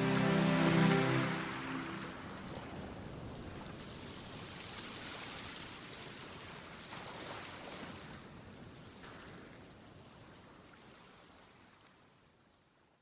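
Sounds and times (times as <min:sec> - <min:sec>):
music: 0:00.0 - 0:02.5
faint rushing noise: 0:00.0 - 0:03.3.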